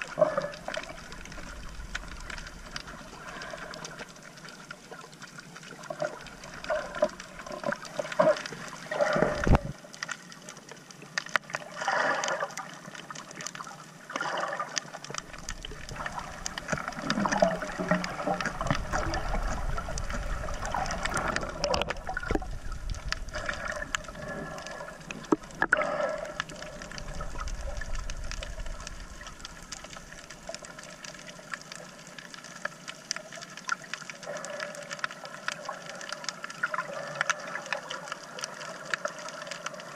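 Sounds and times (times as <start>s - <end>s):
underwater sloshing and gurgling: 0.0s - 39.9s
low rumble: 15.2s - 25.6s, 26.4s - 30.6s.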